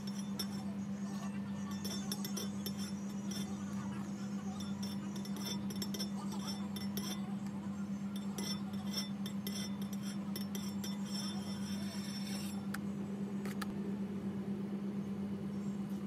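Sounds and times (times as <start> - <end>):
palette knife clinking on turntable: 0.0 - 7.3, 8.1 - 12.6
steady low hum: 0.0 - 16.0.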